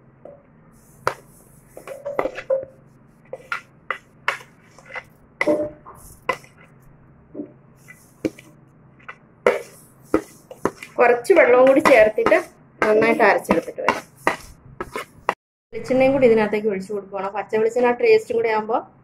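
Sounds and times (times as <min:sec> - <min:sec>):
metal spoon tapping and scraping: 0:01.8 - 0:02.7, 0:03.3 - 0:06.7, 0:09.0 - 0:15.1.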